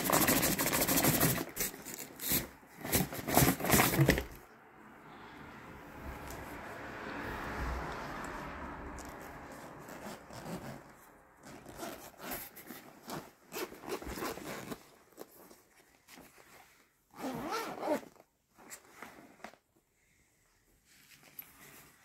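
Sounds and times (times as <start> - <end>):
zipper being pulled open: 0.0 - 4.4, 9.0 - 15.7, 17.1 - 19.6.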